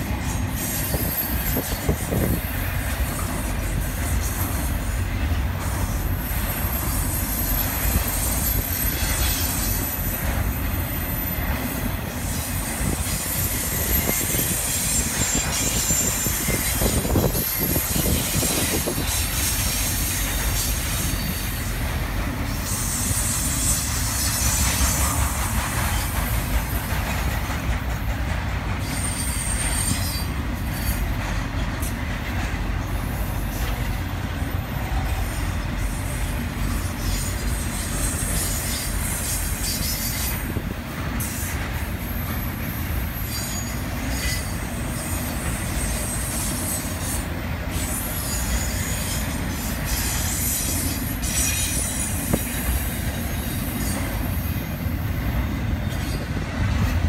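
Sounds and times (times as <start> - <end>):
steel wheels rumbling on rail: 0.0 - 57.0
high-pitched wheel squeals: 0.1 - 2.6, 5.7 - 21.8, 22.4 - 26.2, 28.8 - 31.2, 34.8 - 40.6, 41.2 - 55.1.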